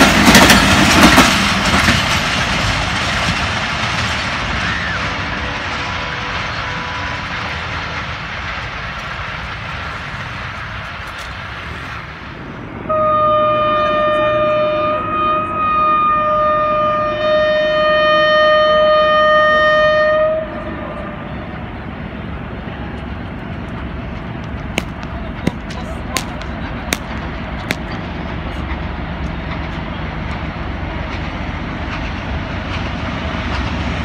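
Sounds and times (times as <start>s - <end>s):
train coaches rumbling: 0.0s - 34.0s
locomotive horn blast: 5.3s - 7.7s, 12.8s - 21.6s.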